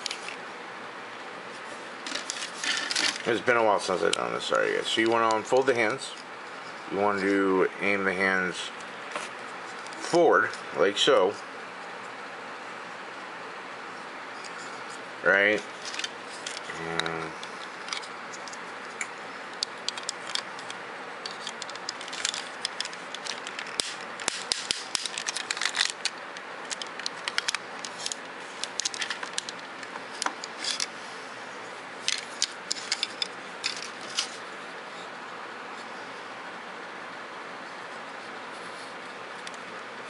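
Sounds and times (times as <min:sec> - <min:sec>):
plastic toy parts clicking and rattling: 0:19.6 - 0:29.6, 0:32.1 - 0:34.3.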